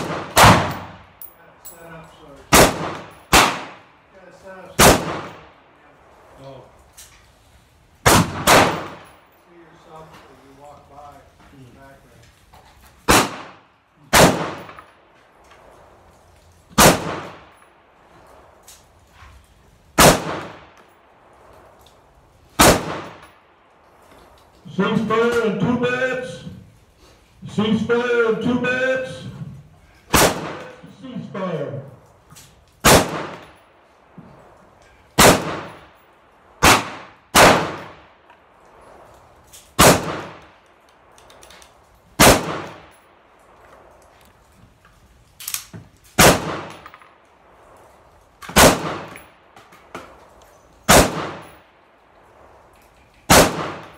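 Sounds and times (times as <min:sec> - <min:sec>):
rifle shots echoing: 0:00.0 - 0:01.3, 0:02.5 - 0:05.8, 0:08.0 - 0:09.3, 0:13.0 - 0:16.0, 0:16.7 - 0:18.6, 0:20.0 - 0:21.8, 0:22.6 - 0:23.6, 0:30.1 - 0:31.5, 0:32.8 - 0:44.1, 0:46.2 - 0:53.9.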